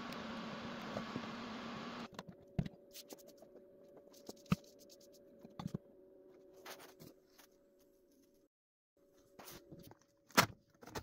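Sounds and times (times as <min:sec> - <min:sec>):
faint steady hum: 0:00.0 - 0:02.5.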